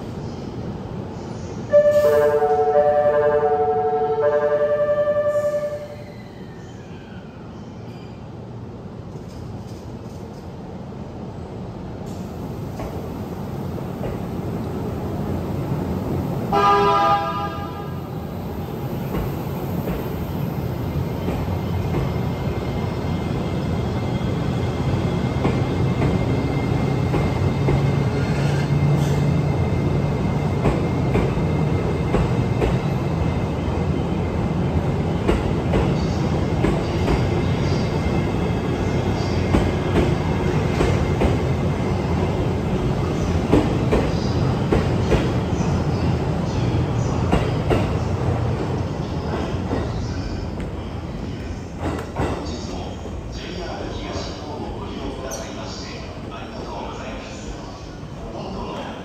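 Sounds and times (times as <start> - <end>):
train horn blast: 1.7 - 6.0, 16.5 - 18.1.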